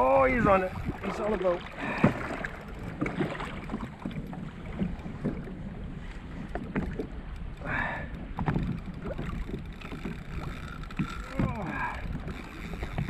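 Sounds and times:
water lapping against hull: 0.0 - 13.0
wind on microphone: 0.0 - 13.0
small clicks and knocks: 6.4 - 13.0.

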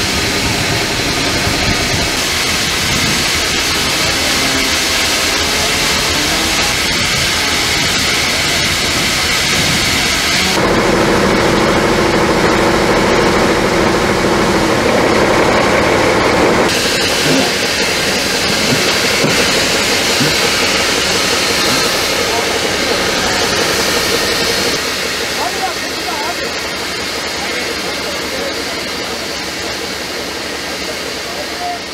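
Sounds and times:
multi-tone hum: 0.0 - 28.6
engine running: 0.0 - 31.9
heavy hiss: 16.7 - 25.6.

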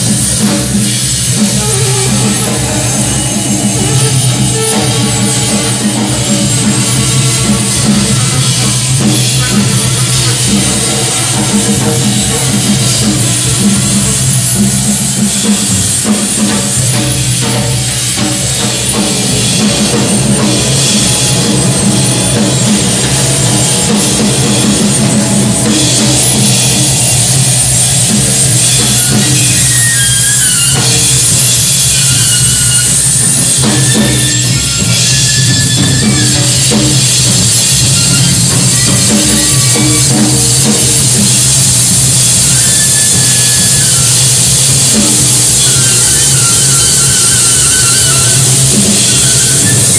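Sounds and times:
droning electronics: 0.0 - 35.3
drum kit pounding: 0.0 - 49.9
saxophone: 0.0 - 49.9.

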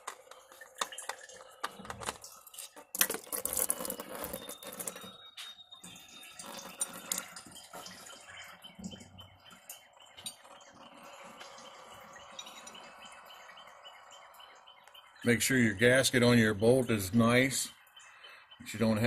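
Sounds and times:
oil pouring and splashing: 0.0 - 13.2
drips ticking: 0.0 - 19.0.

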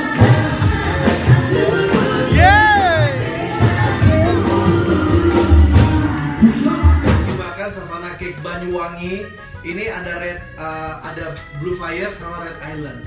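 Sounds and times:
loud party music with singing: 0.0 - 7.6
person whooping: 2.3 - 3.3.

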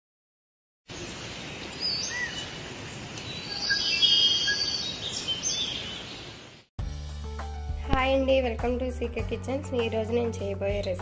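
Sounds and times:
birds chirping and calling: 1.6 - 2.6, 3.2 - 6.4.

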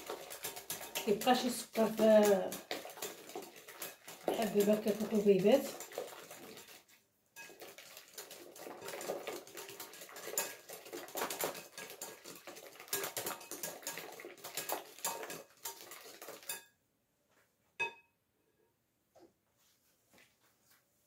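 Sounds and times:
wire whisk clattering in glass bowl: 0.0 - 16.7.

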